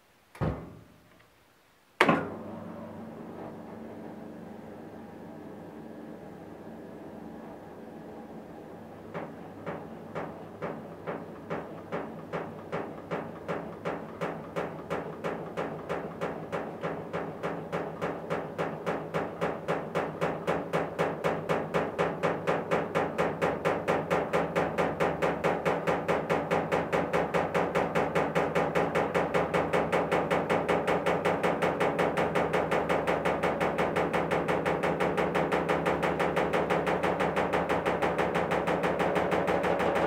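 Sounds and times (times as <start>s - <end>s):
washing machine load knocking: 0.4s - 0.9s, 2.0s - 2.4s, 8.9s - 40.0s
washing machine motor hum: 2.0s - 40.0s.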